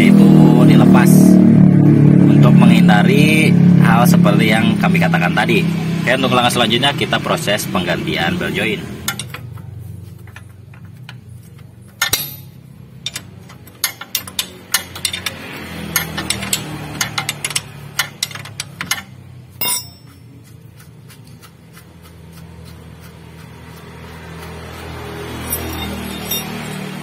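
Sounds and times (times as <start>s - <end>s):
ring spanner clicking on bolts: 9.0s - 27.0s.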